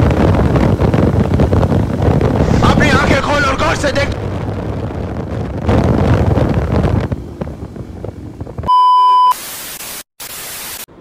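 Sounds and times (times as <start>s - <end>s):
motorcycle road noise: 0.0s - 8.7s
wind buffeting microphone: 0.0s - 8.7s
loud steady beep: 8.7s - 9.4s
static hiss: 9.3s - 11.0s.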